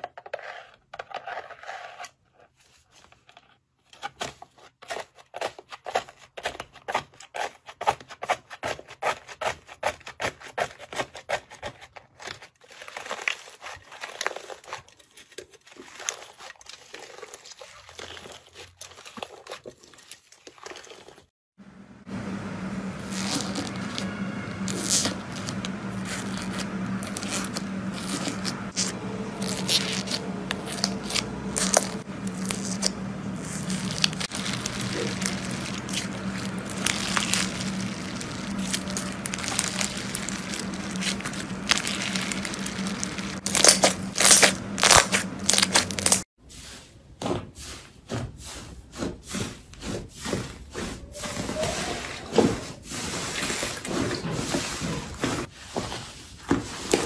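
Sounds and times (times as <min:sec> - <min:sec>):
low hum: 0:21.6 - 0:46.2
foam slime crackling and popping: 0:22.9 - 0:46.2
soft slime squishing: 0:23.0 - 0:46.2.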